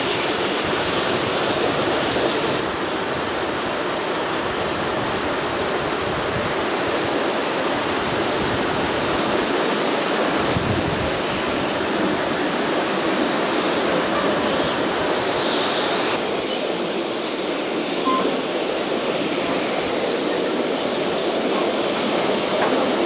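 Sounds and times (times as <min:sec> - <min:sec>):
steam locomotives working: 0:00.0 - 0:23.0
wind rushing: 0:05.9 - 0:20.1
train wheels rolling: 0:06.4 - 0:23.0.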